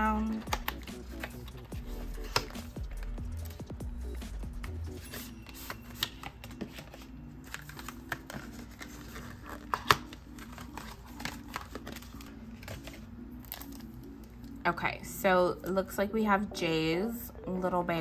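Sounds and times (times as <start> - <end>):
packaging clicks and taps: 0.2 - 3.1, 5.1 - 14.6.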